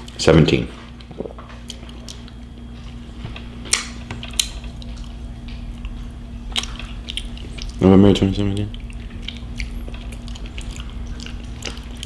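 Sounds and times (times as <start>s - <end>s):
wet mouth eating sounds: 1.0s - 2.6s, 3.7s - 7.8s, 8.4s - 12.0s.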